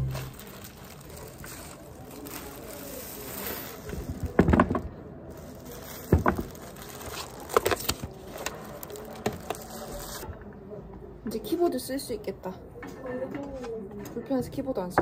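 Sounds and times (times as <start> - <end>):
packaging rustling: 0.0 - 10.2.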